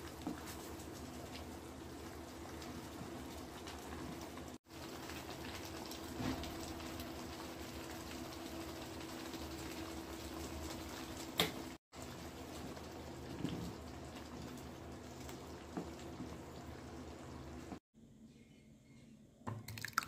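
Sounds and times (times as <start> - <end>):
curry simmering with bubbling pops: 0.0 - 17.8.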